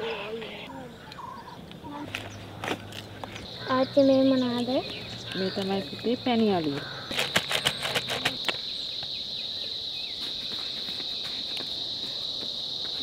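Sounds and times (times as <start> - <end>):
insects chirring: 0.0 - 13.0
sharp clicks and crackles: 7.1 - 8.6.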